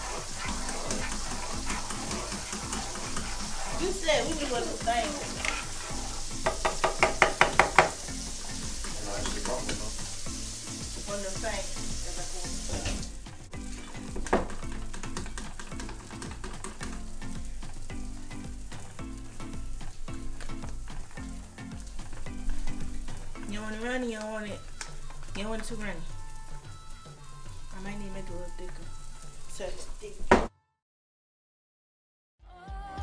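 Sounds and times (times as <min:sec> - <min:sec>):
whisk clicking against metal bowl: 0:00.0 - 0:10.2, 0:14.2 - 0:17.1
sausages sizzling in a frying pan: 0:00.0 - 0:30.4.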